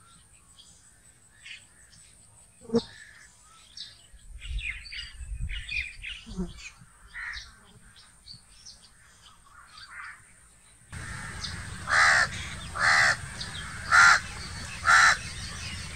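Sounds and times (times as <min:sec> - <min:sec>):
crow cawing: 0:11.0 - 0:15.9.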